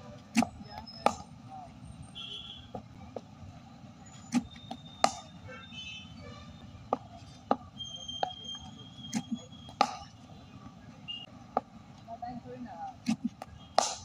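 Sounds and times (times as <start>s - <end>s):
low background noise: 0.0s - 14.0s
cricket bat striking ball: 0.4s - 1.3s, 4.4s - 5.3s, 9.2s - 10.2s, 13.1s - 14.0s.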